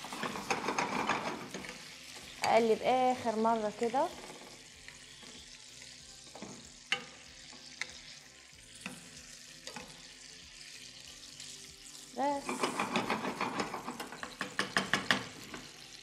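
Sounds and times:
spatula knocking and scraping pan: 0.0 - 2.5, 12.5 - 15.8
burger patties sizzling in pan: 0.0 - 16.0.

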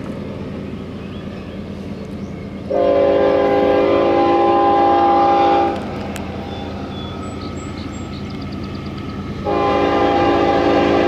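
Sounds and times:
low rumble of train: 0.0 - 11.0
locomotive air horn blast: 2.7 - 5.9, 9.4 - 11.0.

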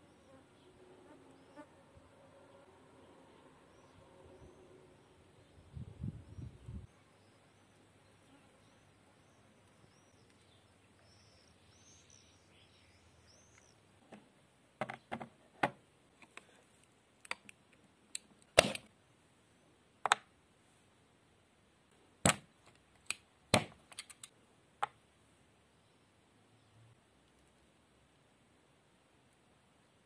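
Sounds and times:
faint bird chirps: 2.4 - 13.9.

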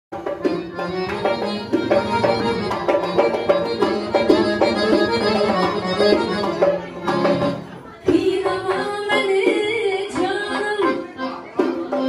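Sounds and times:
hand drum beat: 0.1 - 12.0
accordion playing folk tune: 0.2 - 12.0.

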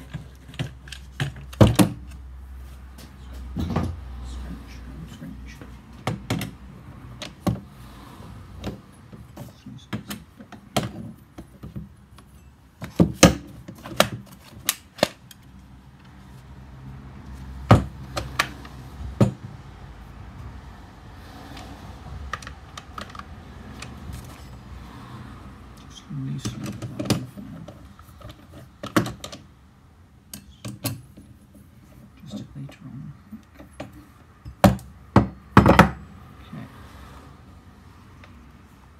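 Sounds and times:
metal and plastic parts clicking: 22.3 - 24.4.

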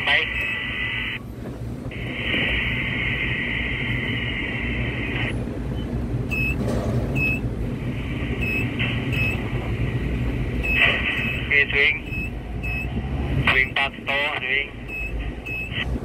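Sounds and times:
low machinery rumble: 0.0 - 16.0
static-like hiss: 1.9 - 5.3
short high beeps: 6.3 - 6.6, 7.2 - 7.4, 8.4 - 9.4, 10.6 - 12.9, 14.9 - 15.7.

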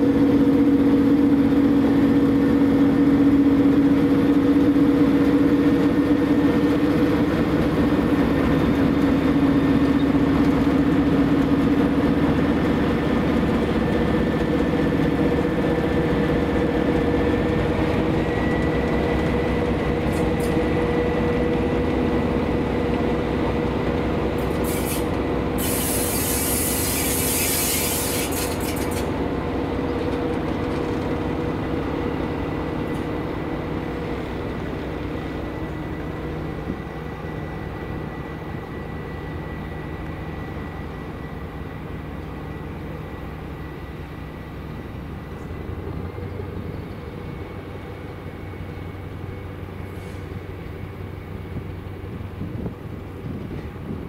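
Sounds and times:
wagon wheels rumbling on rails: 0.0 - 37.0
diesel locomotive engine droning: 0.0 - 54.0
loud hiss: 24.4 - 29.0.

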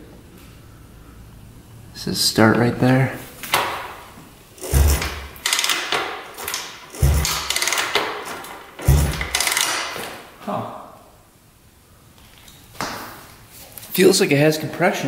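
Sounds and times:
engine turning over rattling: 4.5 - 10.0
kick-starter thump: 4.6 - 5.4, 7.0 - 7.7, 8.8 - 9.4.

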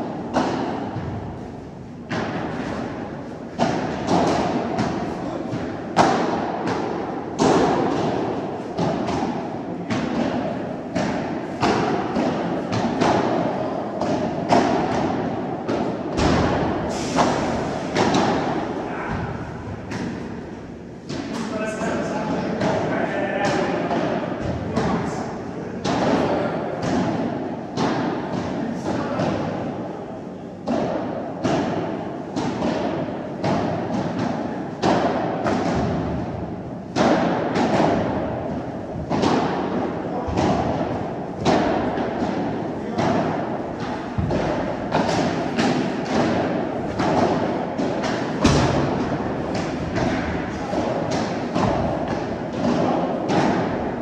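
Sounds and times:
padel ball struck by rackets: 2.1 - 20.4, 30.6 - 54.0
ball bouncing on court: 40.3 - 53.8.

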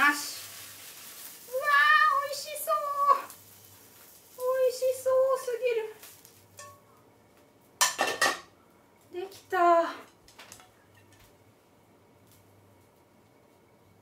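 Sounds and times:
pan and chopsticks clattering on plate: 7.8 - 8.5.

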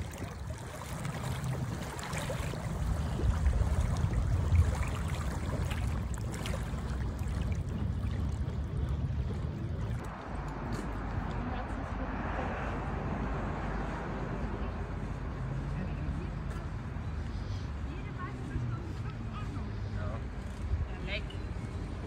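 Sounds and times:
small waves lapping over pebbles: 0.0 - 11.3
wind rumble on microphone: 0.0 - 22.0.

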